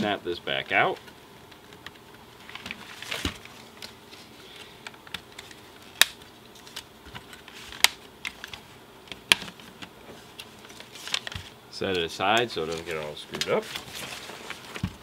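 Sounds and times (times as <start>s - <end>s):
hard plastic snapping: 4.8s - 10.0s.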